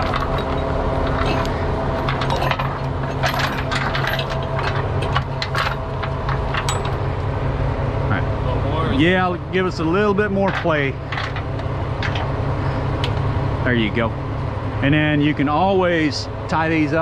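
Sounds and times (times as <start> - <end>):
tow chain links clinking: 0.0 - 7.1, 10.4 - 12.3
truck engine running: 0.0 - 17.0.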